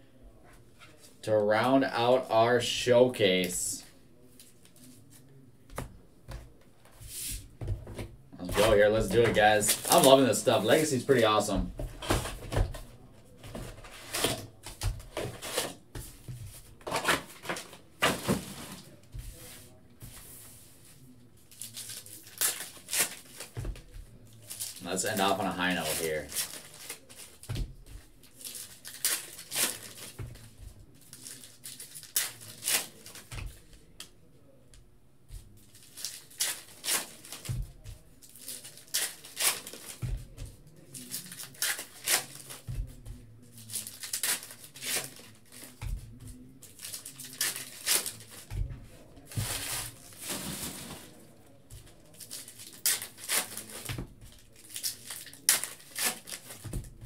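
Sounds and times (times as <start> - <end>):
foil wrappers crinkling and tearing: 21.5 - 23.6, 24.3 - 27.5, 28.2 - 30.2, 31.0 - 33.3, 35.6 - 37.5, 38.2 - 40.0, 40.9 - 42.7, 43.5 - 45.8, 46.6 - 48.5, 52.1 - 56.6.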